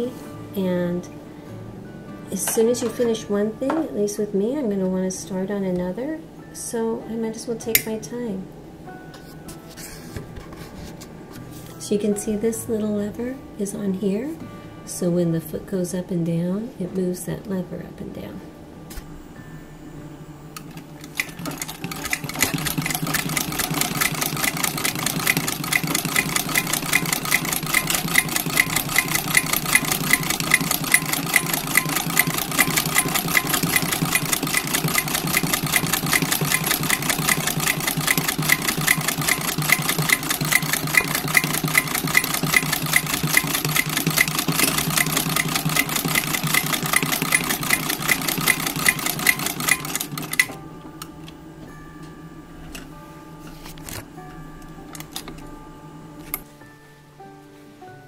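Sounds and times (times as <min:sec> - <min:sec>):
sewing machine clattering: 0:21.0 - 0:50.6.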